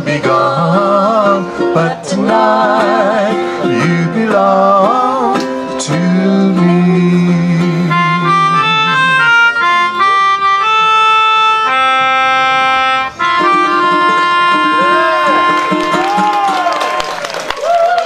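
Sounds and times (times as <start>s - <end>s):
ukulele strumming: 0.0s - 10.3s, 13.1s - 16.8s
melodica playing slow melody: 7.0s - 16.1s.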